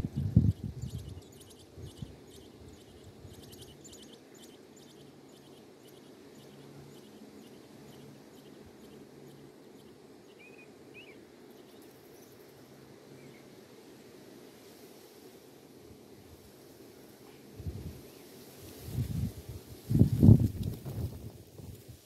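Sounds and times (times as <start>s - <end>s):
low background hum: 0.0s - 21.8s.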